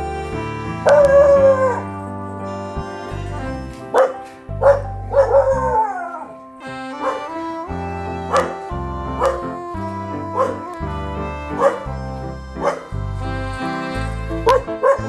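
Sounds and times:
background music: 0.0s - 15.0s
dog howling: 0.8s - 1.9s, 4.0s - 6.4s, 8.2s - 10.9s, 11.5s - 12.0s, 12.6s - 12.9s
dog barking: 3.9s - 6.2s, 7.0s - 7.2s, 8.3s - 8.6s, 9.2s - 9.5s, 10.4s - 10.6s, 11.6s - 11.9s, 12.6s - 12.9s, 14.5s - 15.0s.

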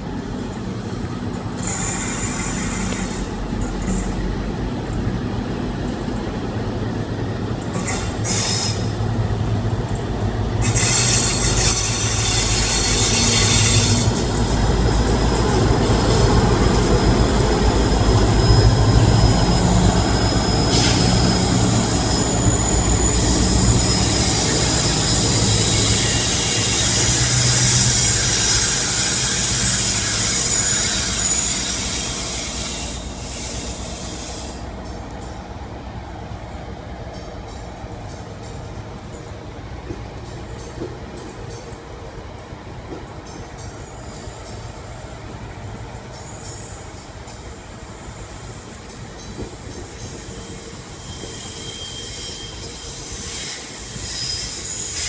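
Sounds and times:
diesel locomotive engine: 0.0s - 55.0s
wheel squeal: 10.6s - 14.5s, 15.1s - 35.0s, 44.5s - 55.0s.

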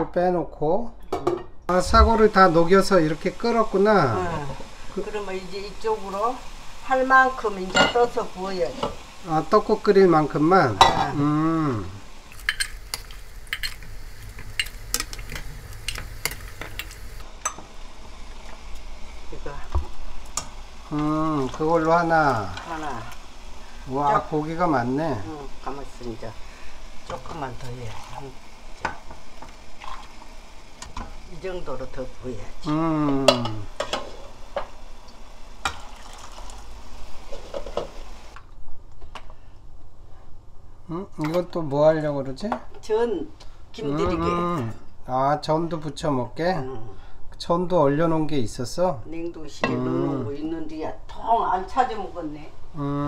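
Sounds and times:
broth boiling and bubbling: 1.7s - 38.4s
broth bubbling at a boil: 20.2s - 31.5s, 34.9s - 38.4s.

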